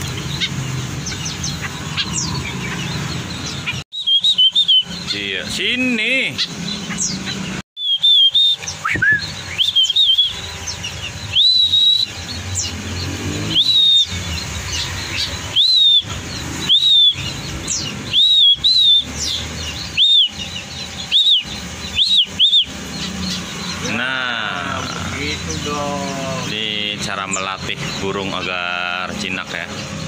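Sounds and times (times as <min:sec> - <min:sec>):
person whistling short notes: 0:07.8 - 0:10.3.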